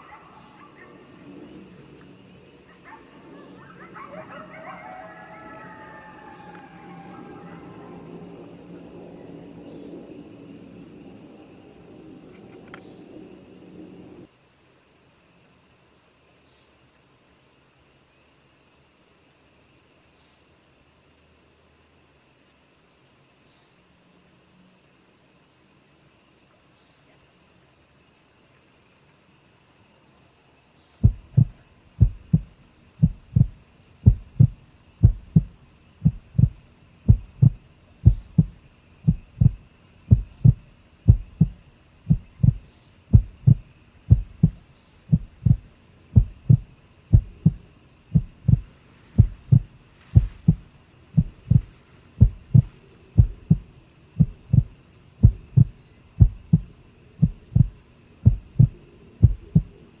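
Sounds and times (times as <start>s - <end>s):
heartbeat thumps: 31.0s - 59.8s.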